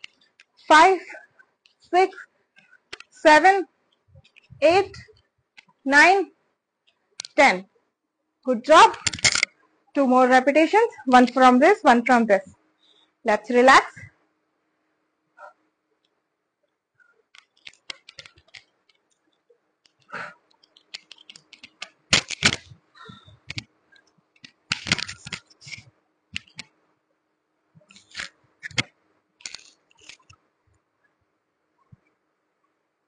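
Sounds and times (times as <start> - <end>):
clothing rustling on lapel microphone: 0.0 - 5.8, 17.0 - 26.8.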